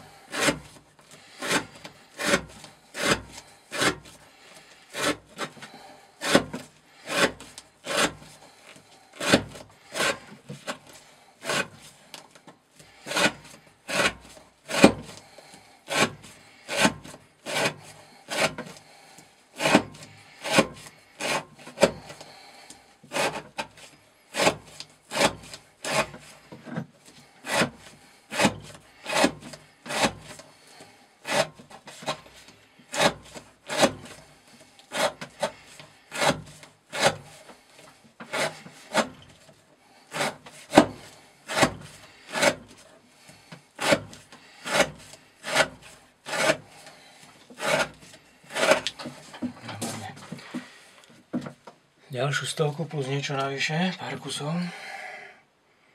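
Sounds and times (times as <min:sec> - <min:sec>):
knife slicing through rope: 0:00.3 - 0:05.6, 0:06.2 - 0:08.4, 0:09.2 - 0:11.9, 0:13.0 - 0:15.3, 0:15.9 - 0:18.8, 0:19.6 - 0:22.2, 0:23.1 - 0:26.5, 0:27.4 - 0:37.6, 0:38.2 - 0:39.4, 0:40.1 - 0:42.9, 0:43.8 - 0:46.9, 0:47.5 - 0:50.1.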